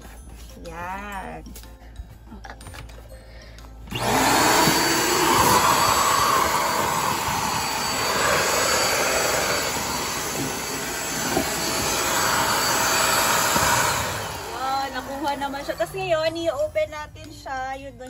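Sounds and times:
vacuum cleaner switching on: 3.9s - 16.1s
handheld vacuum cleaner running: 3.9s - 16.3s.

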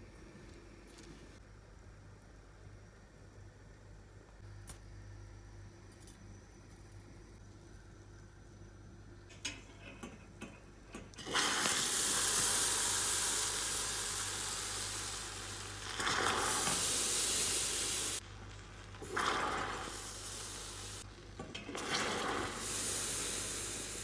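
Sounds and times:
caramel hissing and bubbling: 11.1s - 24.0s.

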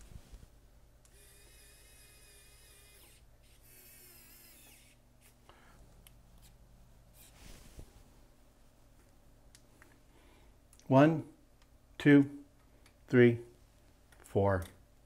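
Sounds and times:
electric screwdriver whine: 1.1s - 5.0s.

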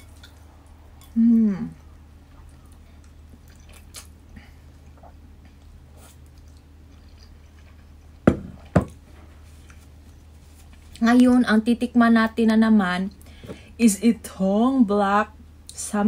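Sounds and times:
person chewing and slurping noodles: 2.3s - 8.2s
sharp knocks: 8.3s - 9.0s.

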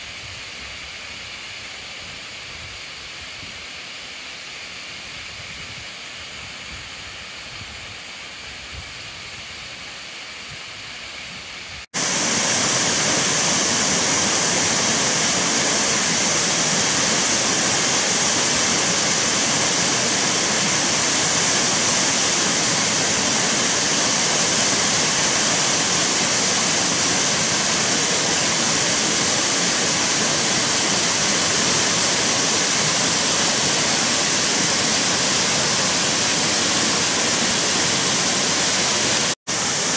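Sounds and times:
waterfall rushing: 12.0s - 39.9s.

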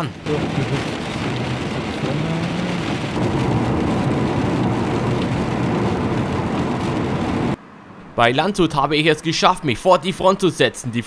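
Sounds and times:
rain on windscreen: 0.0s - 7.6s
tyre and road noise: 0.0s - 10.4s
low engine hum: 0.1s - 8.4s.

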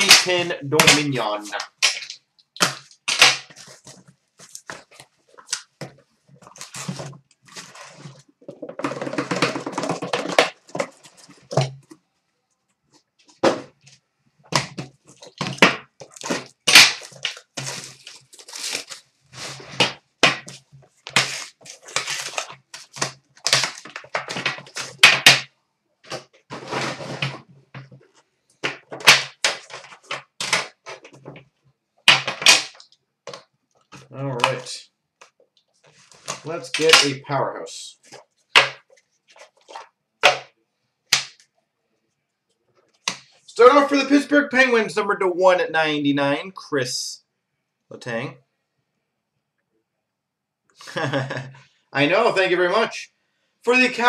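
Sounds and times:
cardboard rustling and scraping: 3.5s - 12.0s, 14.6s - 25.1s, 26.1s - 31.5s, 35.8s - 36.7s
boxes knocking on glass counter: 8.5s - 11.8s.

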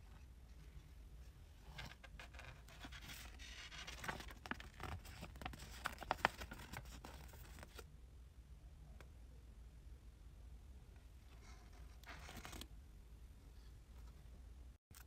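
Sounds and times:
paper crackling and rustling: 1.7s - 7.8s.

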